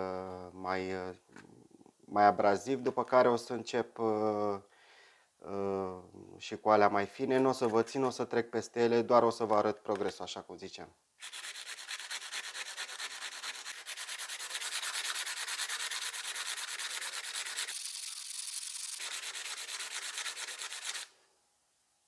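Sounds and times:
sandpaper rubbing on stone: 0:11.2 - 0:21.1.

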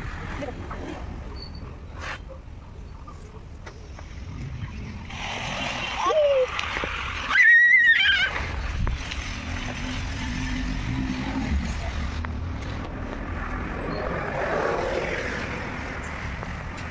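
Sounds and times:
low rumble: 0:08.3 - 0:16.9.

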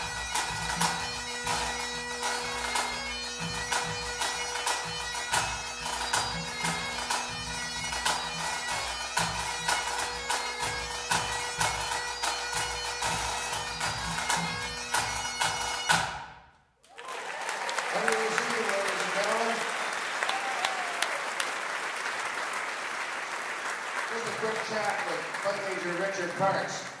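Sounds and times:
bagpipes playing a tune: 0:00.0 - 0:16.3
pipe band drums: 0:00.0 - 0:16.5.

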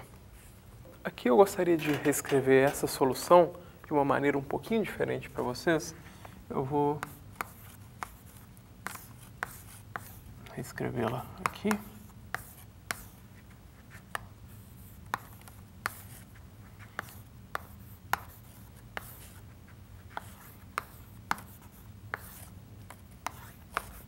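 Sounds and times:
chalk scratching: 0:06.9 - 0:24.0
chalk tapping on chalkboard: 0:07.0 - 0:10.2, 0:11.0 - 0:13.2, 0:13.9 - 0:19.4, 0:20.0 - 0:24.0.

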